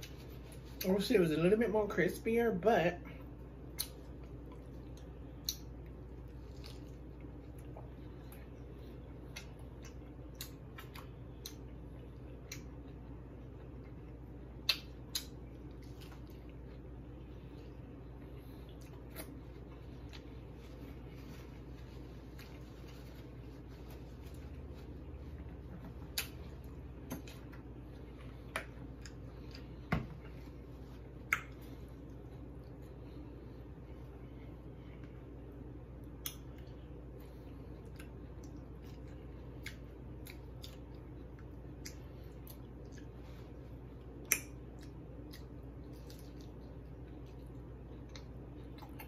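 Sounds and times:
low steady hum: 0:00.0 - 0:49.0
chewing crunchy taco: 0:03.2 - 0:33.3, 0:35.0 - 0:49.0.

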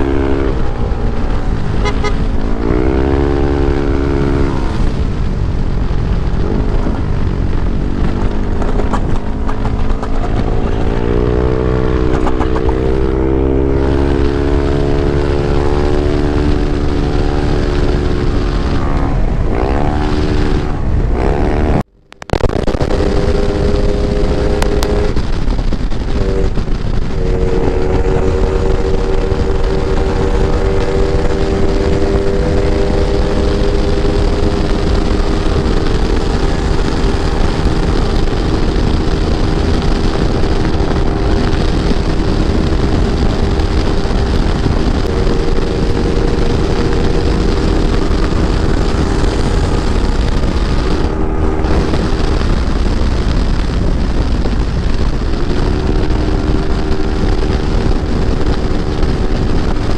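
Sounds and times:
wind rumble on microphone: 0:00.0 - 0:59.9
scooter engine running: 0:04.2 - 0:13.7, 0:22.7 - 0:59.9.

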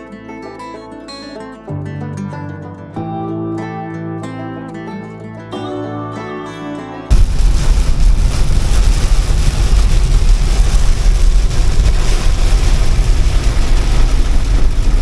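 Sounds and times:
heavy rain on car roof: 0:07.1 - 0:15.0.

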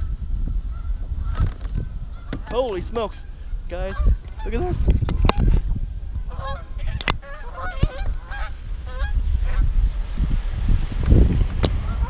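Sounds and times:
wind rumbling on microphone: 0:00.0 - 0:12.0
geese honking: 0:00.7 - 0:04.6, 0:06.2 - 0:09.6.

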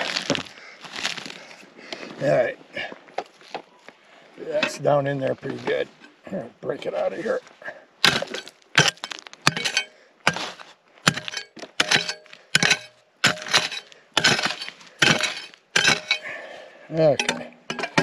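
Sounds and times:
pick striking rock: 0:08.0 - 0:16.3, 0:17.0 - 0:18.0.

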